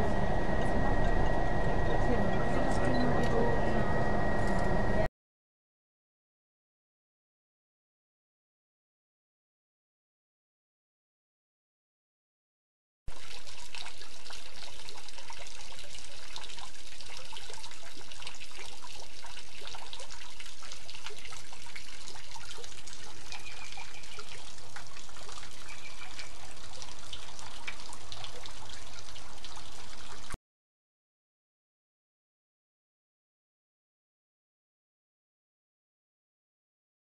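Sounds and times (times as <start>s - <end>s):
fountain water trickling and splashing: 13.1s - 30.4s.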